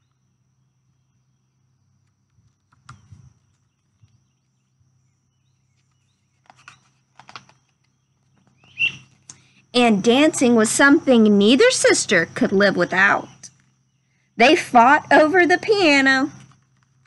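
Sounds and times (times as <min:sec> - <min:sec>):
faint low hum: 0:00.0 - 0:17.0
book pages rustling: 0:05.7 - 0:09.2.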